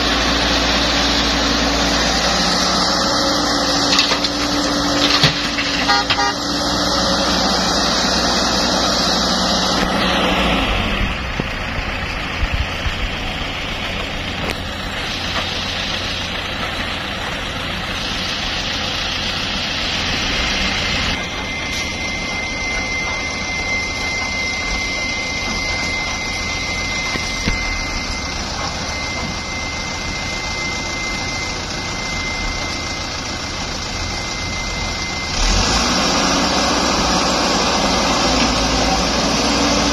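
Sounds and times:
diesel engines running: 0.0 - 39.9
thin high whine: 12.0 - 39.9.

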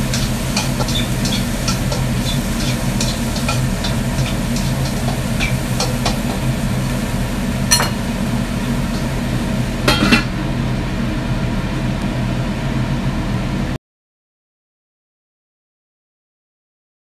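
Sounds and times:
utensils clinking against dishes: 0.0 - 6.5, 7.7 - 8.2, 9.9 - 10.3
gas stove hum: 0.0 - 13.8.

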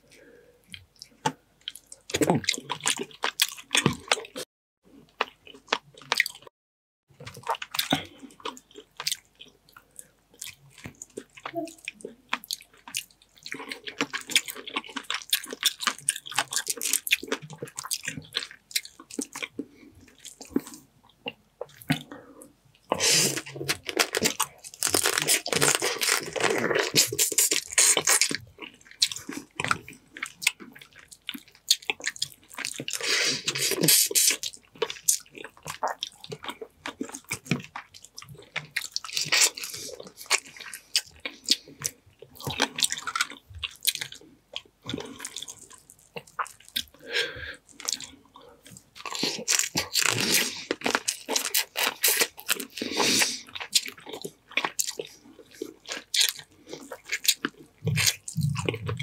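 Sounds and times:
wet chewing and slurping: 7.2 - 59.0
crab shell crunching: 23.2 - 32.9.

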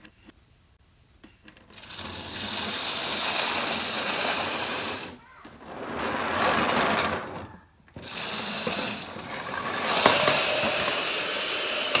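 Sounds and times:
toy engine gears whirring: 1.7 - 5.2, 8.0 - 12.0.

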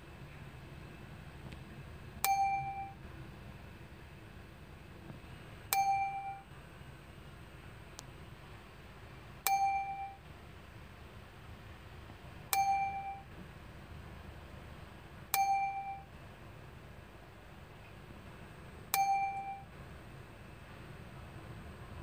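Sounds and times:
bright ding: 2.2 - 3.0, 5.7 - 6.4, 9.5 - 10.2, 12.5 - 13.3, 15.4 - 16.1, 19.0 - 19.7.

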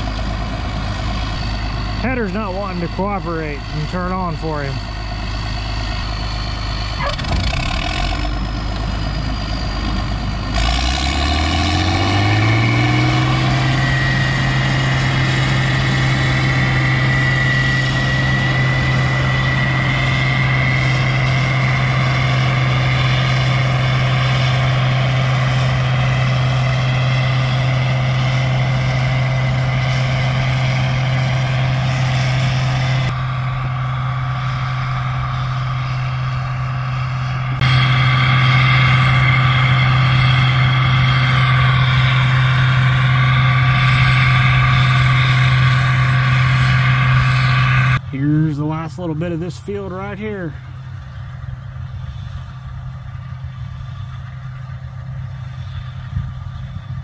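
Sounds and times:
combine engine revving: 0.0 - 50.7
thin high whine: 33.1 - 50.7.

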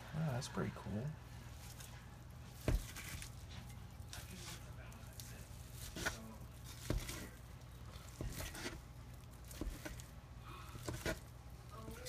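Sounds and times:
forks tearing through cooked meat: 2.6 - 10.1.

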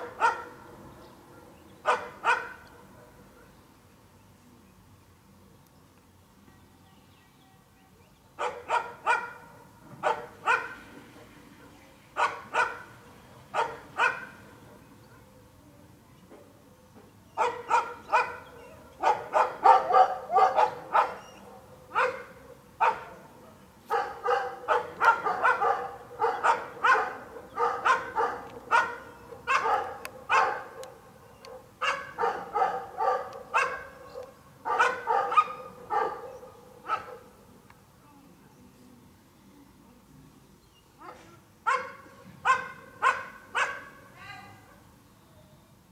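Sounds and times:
dog barking: 0.0 - 0.6, 1.3 - 3.5, 8.4 - 10.8, 12.2 - 12.9, 13.5 - 14.4, 17.4 - 23.2, 23.9 - 37.4, 41.0 - 44.0.

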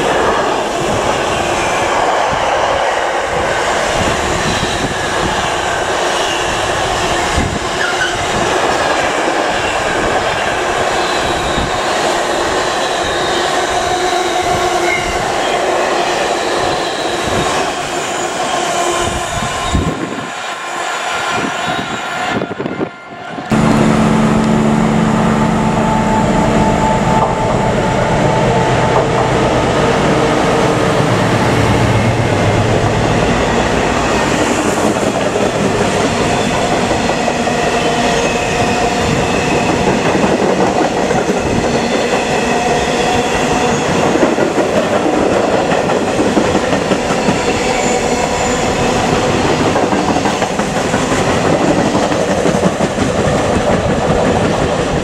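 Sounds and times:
steady engine drone: 23.5 - 36.8
train wheels clattering over rails: 32.7 - 55.0.

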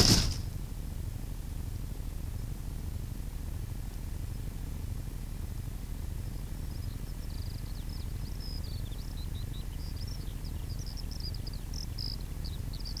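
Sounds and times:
small songbird chirping and trilling: 6.2 - 13.0.

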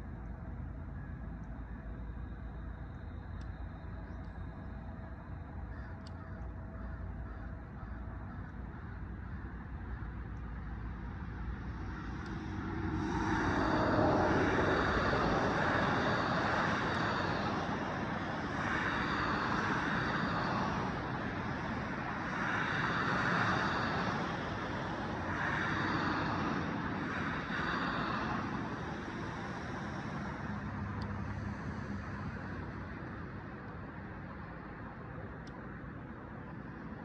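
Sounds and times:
jet aircraft passing overhead: 0.0 - 37.0
road traffic: 0.0 - 37.0.

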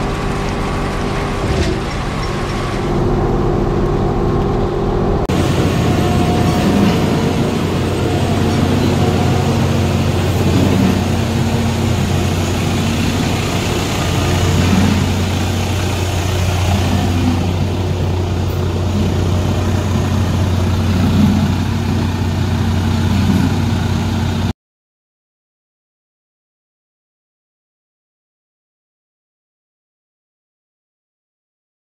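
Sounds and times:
diesel truck engine idling: 0.0 - 24.5.

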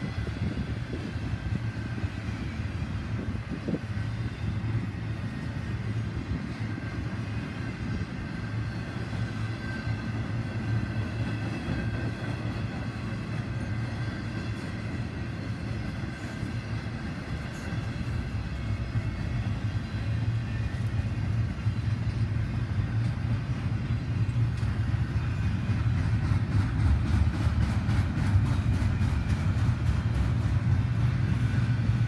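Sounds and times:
rail clicks: 0.0 - 32.0
train wheels rumbling on rail: 0.0 - 32.0.

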